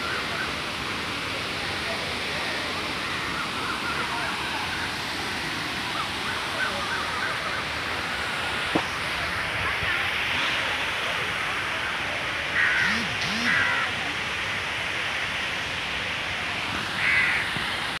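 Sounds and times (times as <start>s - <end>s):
crow cawing: 12.6s - 13.9s, 17.0s - 17.5s.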